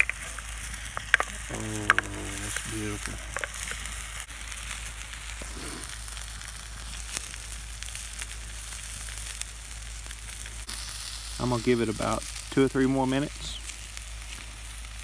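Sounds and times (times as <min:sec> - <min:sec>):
fire crackling: 0:00.0 - 0:15.0
sandwich sizzling in a pan: 0:00.0 - 0:15.0.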